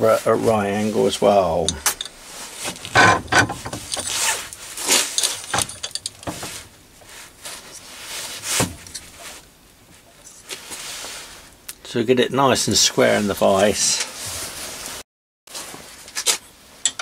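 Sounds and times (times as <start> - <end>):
metal pieces knocking and scraping: 1.7 - 6.6.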